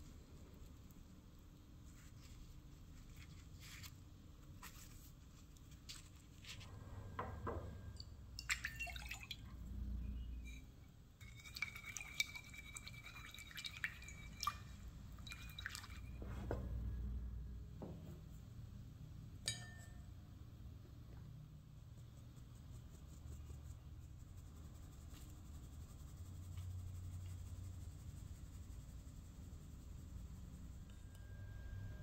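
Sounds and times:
water pouring into bowl: 8.4 - 9.5, 11.2 - 16.2
glass clinking against bowl: 19.4 - 20.1.

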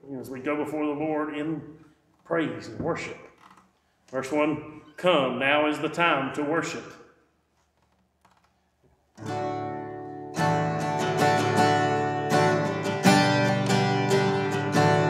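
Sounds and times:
acoustic guitar strumming chords: 9.2 - 15.0.

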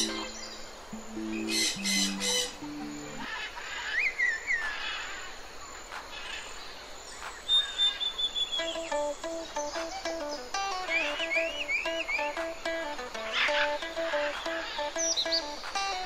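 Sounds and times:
soft music: 0.0 - 3.3, 8.6 - 16.0
birds chirping and calling: 0.0 - 5.4, 7.2 - 16.0.

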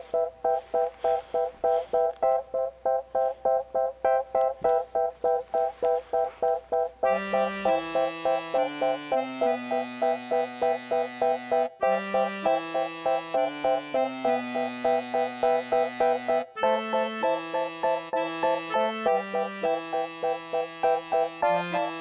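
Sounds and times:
low held notes: 0.0 - 16.3
quick repeated short notes: 0.0 - 22.0.

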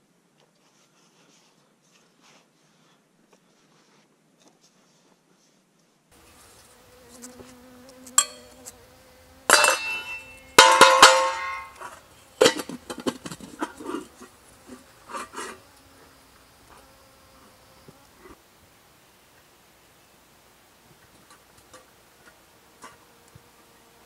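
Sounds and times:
faint steady buzz: 6.1 - 24.0
loud ringing clangs: 9.5 - 12.8
metal pot and lid clanking: 9.5 - 14.1.

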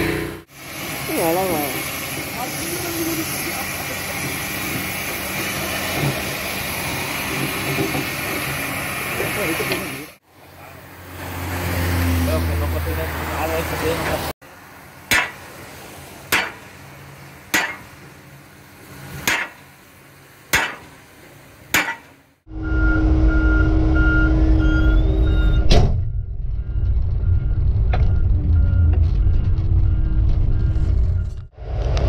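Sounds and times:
diesel engine running: 0.0 - 19.2, 22.5 - 32.0
sledgehammer striking steel: 15.1 - 15.4, 16.3 - 16.7, 17.5 - 17.9, 19.2 - 19.6, 20.5 - 21.0, 21.7 - 22.2
high warning beep: 22.5 - 31.5.

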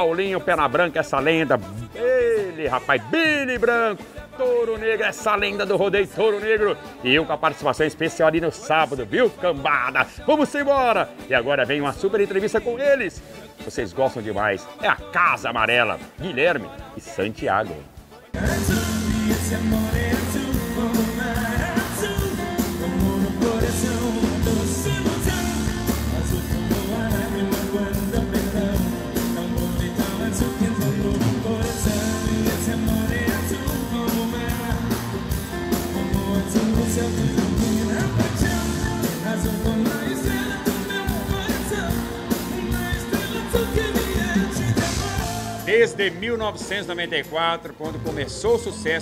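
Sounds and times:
man singing: 0.0 - 49.0
live band playing: 17.7 - 49.0.

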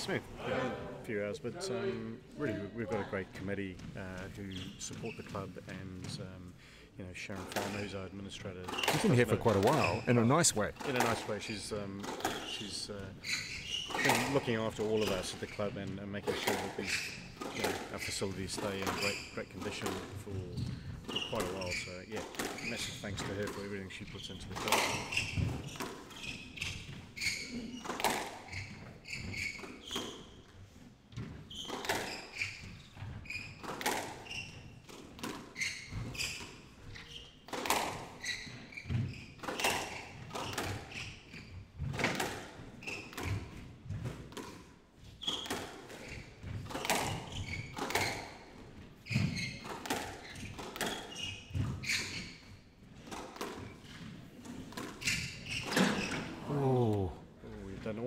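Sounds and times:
shoes squeaking on wooden floor: 0.0 - 58.0
squash ball hits: 31.2 - 32.8, 33.6 - 34.2, 37.5 - 40.9.

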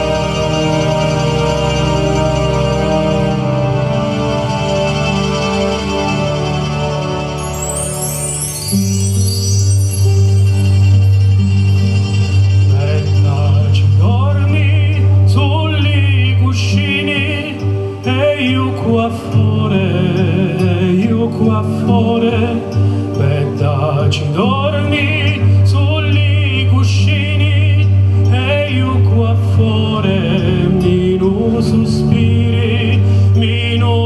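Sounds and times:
amplified backing music with bass: 0.0 - 34.0
man singing with vibrato: 12.6 - 34.0.

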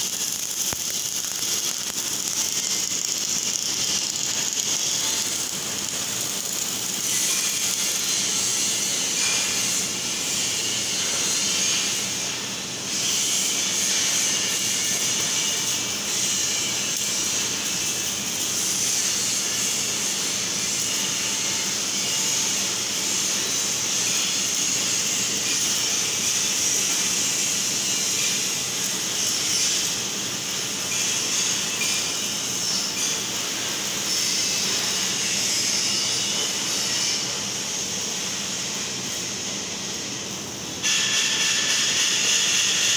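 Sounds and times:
welding arc hissing: 0.0 - 42.9.

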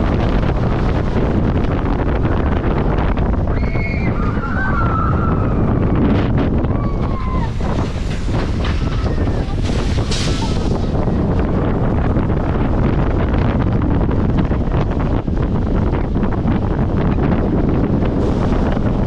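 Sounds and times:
roller coaster rumbling on track: 0.0 - 19.0
wind buffeting microphone: 0.0 - 19.0.

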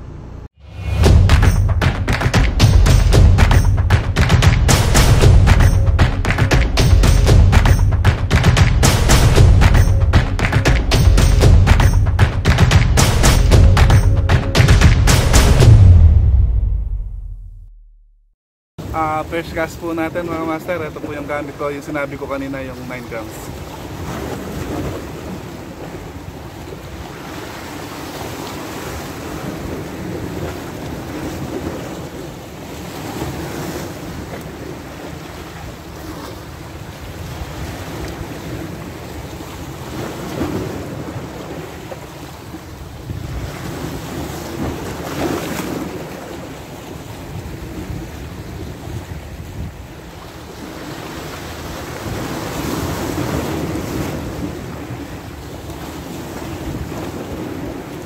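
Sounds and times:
waves breaking on rocks: 18.8 - 58.0
wind buffeting microphone: 23.5 - 58.0.

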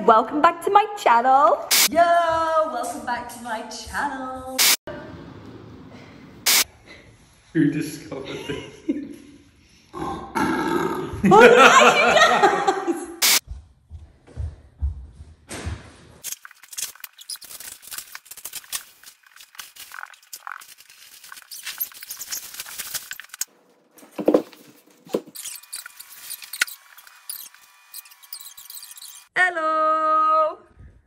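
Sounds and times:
plastic wrapping crinkling: 16.2 - 27.2.

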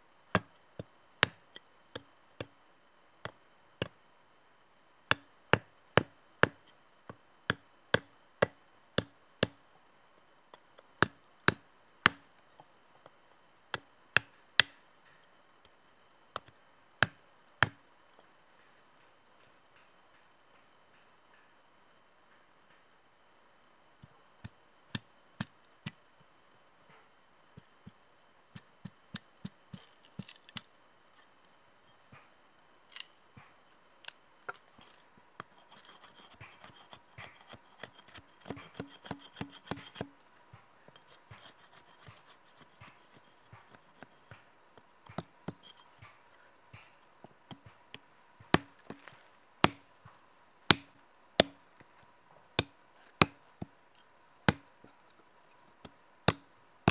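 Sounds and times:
hatchet chopping wooden sticks: 0.3 - 2.5, 5.1 - 9.6, 11.0 - 12.3, 13.7 - 14.8, 16.4 - 17.8, 27.6 - 30.7, 34.5 - 55.2, 55.8 - 56.9.

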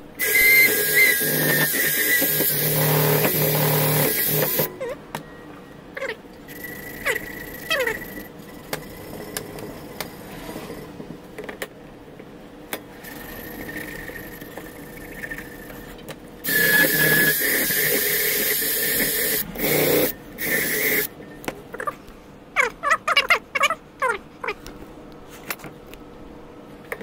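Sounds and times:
hissing shop tool whine: 0.0 - 11.0, 12.9 - 21.5.

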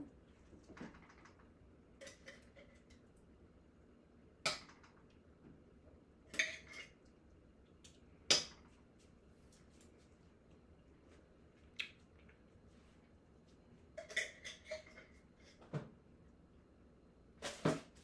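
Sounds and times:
utensil clinking on steel pots: 14.0 - 15.2.

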